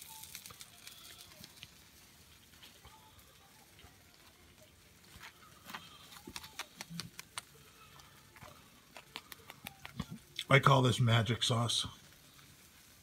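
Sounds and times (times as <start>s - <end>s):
spoon scraping sauce on bun: 5.1s - 10.2s.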